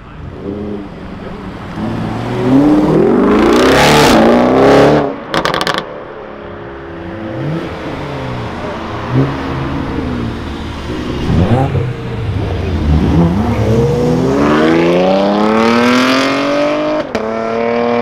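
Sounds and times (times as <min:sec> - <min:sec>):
car engine accelerating hard: 0:07.2 - 0:18.0.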